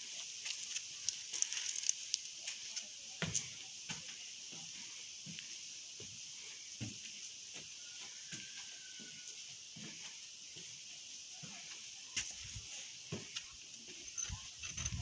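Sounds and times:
steady high hiss: 0.0 - 15.0
footsteps on wooden planks: 6.8 - 9.2, 11.4 - 14.0.

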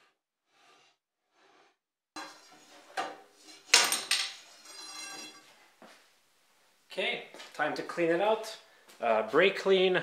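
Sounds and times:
metal clanks with ringing: 3.9 - 5.5.

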